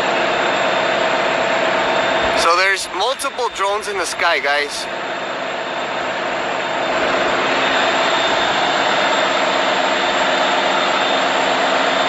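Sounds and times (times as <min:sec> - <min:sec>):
loud engine noise: 0:00.0 - 0:12.0
thin high whine: 0:01.2 - 0:05.8.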